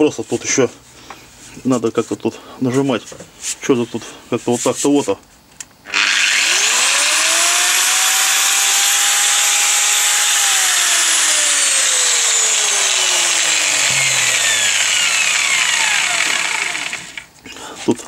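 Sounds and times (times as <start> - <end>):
angle grinder motor whine: 5.9 - 17.3.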